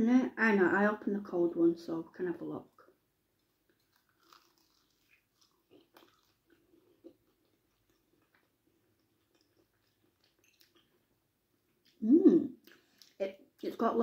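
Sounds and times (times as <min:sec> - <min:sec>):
pastry crunching when chewed: 0:03.4 - 0:11.0.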